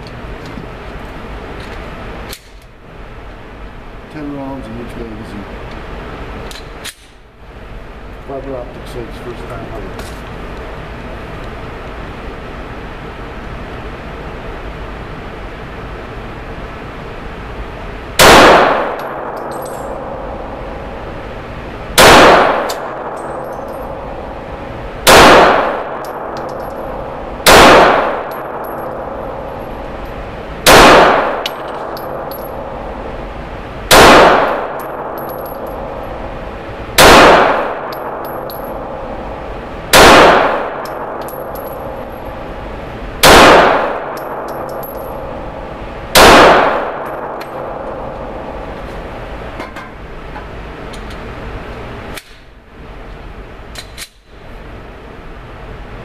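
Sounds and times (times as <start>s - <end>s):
pistol shots ringing indoors: 18.2s - 21.2s, 21.9s - 33.1s, 33.8s - 48.8s.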